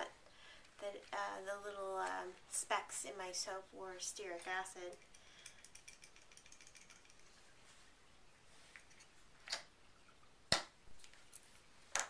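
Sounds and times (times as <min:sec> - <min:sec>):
utensils clicking and knocking: 0:04.8 - 0:07.3.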